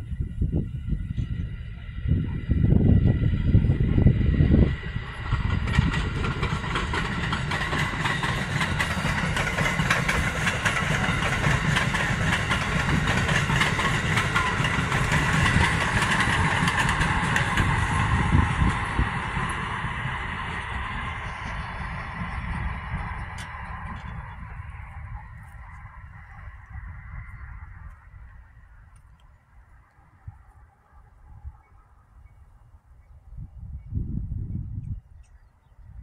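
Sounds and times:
train wheels rushing on rail: 0:00.0 - 0:28.6
low train rumble: 0:00.0 - 0:36.0.

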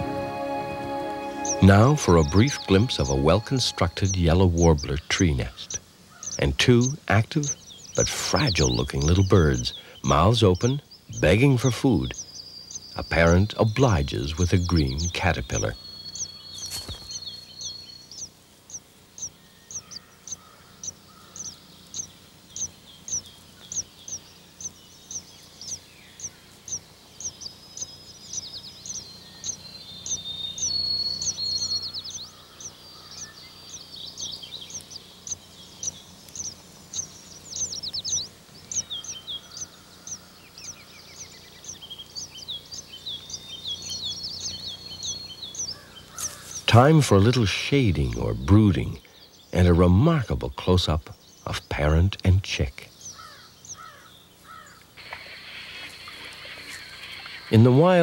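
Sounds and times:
birds chirping: 0:00.0 - 0:58.0
faint low hum: 0:00.0 - 0:58.0.

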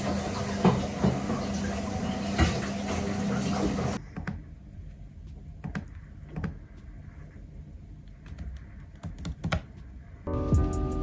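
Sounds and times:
low room hum: 0:02.8 - 0:11.0.

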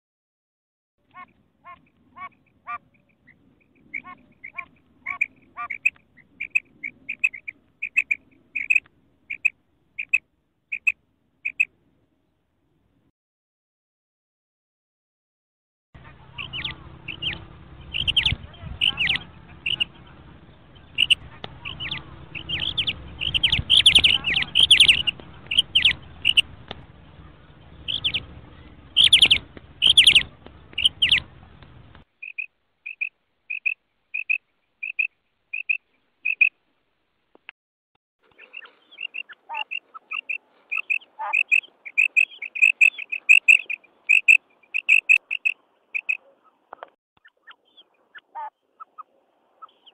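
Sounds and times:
background hum: 0:01.0 - 0:13.1, 0:16.0 - 0:37.2
quail calling: 0:01.1 - 0:11.7, 0:16.0 - 0:20.2, 0:20.8 - 0:26.5, 0:27.1 - 0:31.6, 0:32.2 - 0:36.5, 0:38.2 - 0:49.9.

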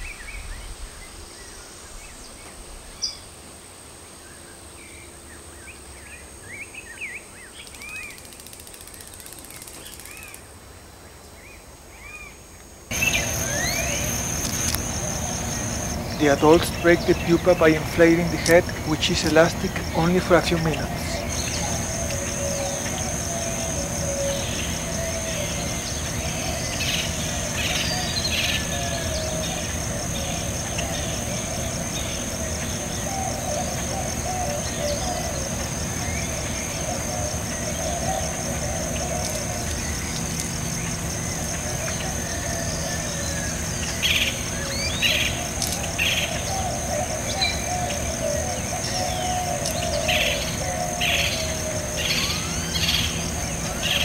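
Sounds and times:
high-pitched insect trill: 0:00.0 - 0:10.6, 0:12.9 - 0:54.0
birds chirping: 0:04.2 - 0:10.6, 0:11.2 - 0:54.0.

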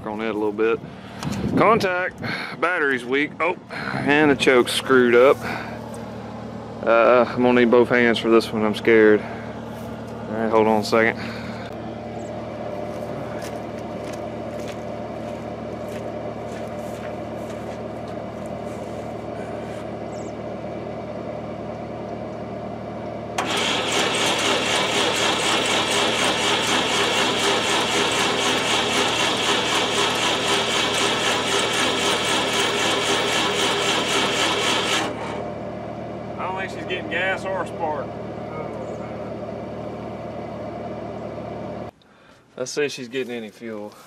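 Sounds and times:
steady engine hum: 0:00.0 - 0:44.0
engine cranking: 0:23.4 - 0:35.5.

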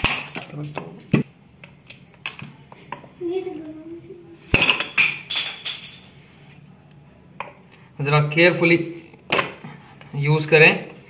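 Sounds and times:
shell fragments clattering: 0:00.0 - 0:00.8.

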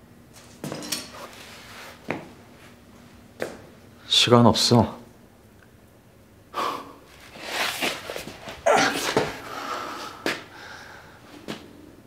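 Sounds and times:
man breathing hard: 0:06.5 - 0:07.1, 0:08.7 - 0:11.4.

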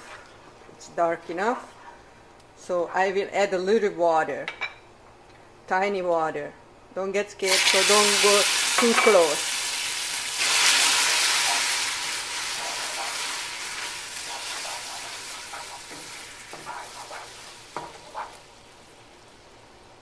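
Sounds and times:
sugar sizzling in a frying pan: 0:07.4 - 0:19.8.

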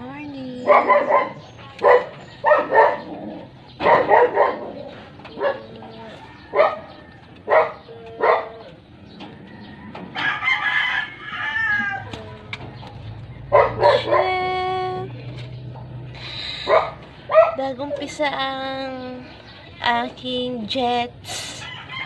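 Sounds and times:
dog barking: 0:00.6 - 0:03.1, 0:03.8 - 0:08.8, 0:13.5 - 0:14.4, 0:16.6 - 0:18.1
rooster crowing: 0:06.0 - 0:07.6, 0:09.3 - 0:12.4, 0:21.6 - 0:22.0.

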